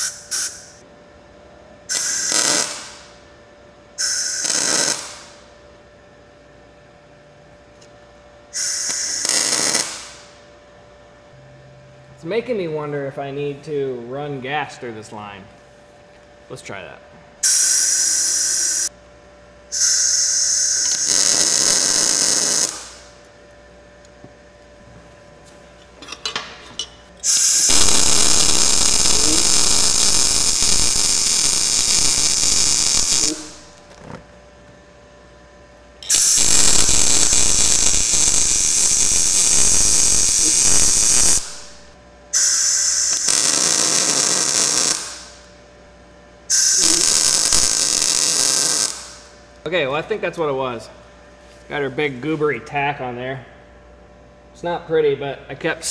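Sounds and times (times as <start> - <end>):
welding arc crackle: 1.9 - 3.2, 4.0 - 5.4, 8.6 - 10.3, 19.8 - 23.2, 27.2 - 34.2, 36.0 - 45.5, 46.5 - 49.4
shielding gas hiss: 27.2 - 33.8.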